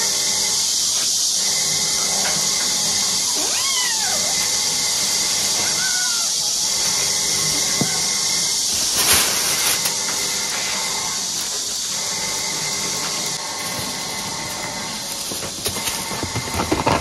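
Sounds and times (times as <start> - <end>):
steady hiss: 0.0 - 17.0
plastic bags rustling: 7.0 - 17.0.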